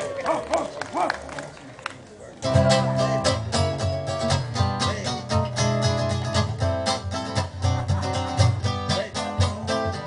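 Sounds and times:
acoustic guitar picking melody: 2.4 - 10.0
acoustic guitar strumming chords: 2.4 - 10.0.

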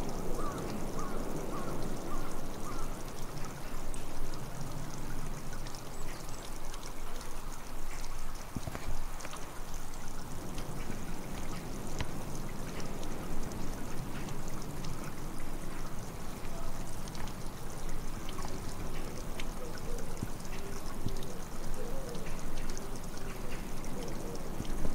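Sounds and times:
running water rushing: 0.0 - 24.9
faint clicks: 7.9 - 9.8.

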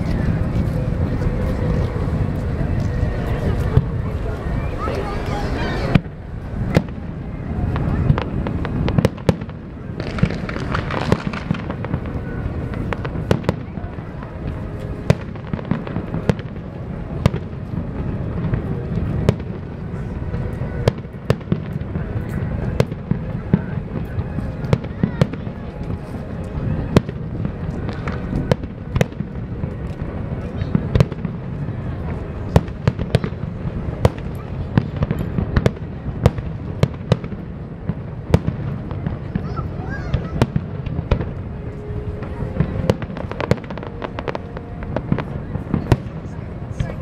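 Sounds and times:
fireworks booming: 0.0 - 47.0
low background noise: 0.0 - 47.0
firework shells bursting: 10.0 - 12.0.

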